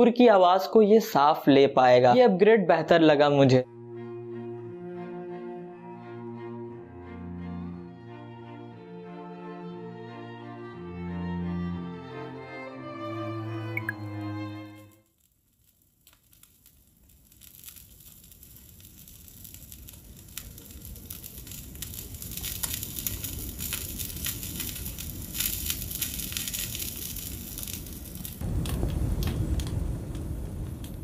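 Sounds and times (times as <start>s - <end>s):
steak sizzling on griddle: 16.1s - 28.4s.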